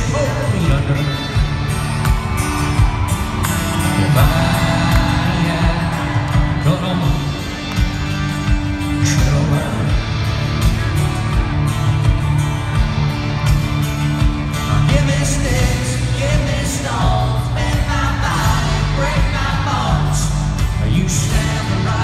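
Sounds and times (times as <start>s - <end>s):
live rock band playing: 0.0s - 22.0s
person singing: 3.9s - 7.4s.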